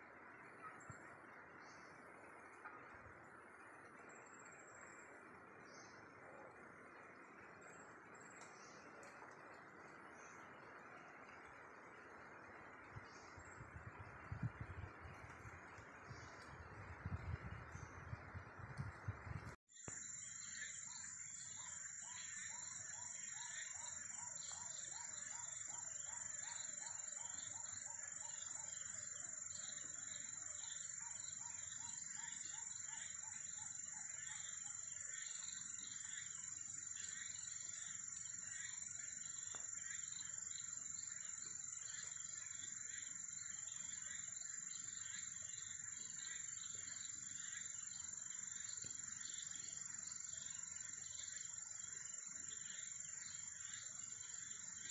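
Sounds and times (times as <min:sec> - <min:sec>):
lower insect chirps: 0:03.6 - 0:54.9
pulsing insect chirps: 0:04.0 - 0:54.9
high-pitched insect trill: 0:19.7 - 0:54.9.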